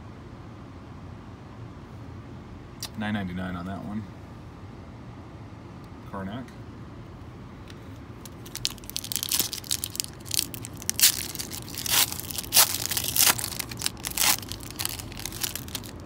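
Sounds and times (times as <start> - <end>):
foil wrapper tearing and crinkling: 8.3 - 16.0.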